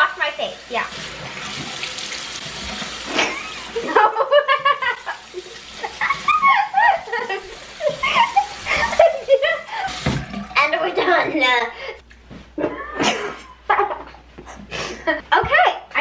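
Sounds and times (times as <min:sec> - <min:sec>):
water splashing on face: 0:00.9 - 0:10.8
person giggling and laughing: 0:03.1 - 0:10.0, 0:12.6 - 0:15.4
tap running into sink: 0:09.8 - 0:10.5.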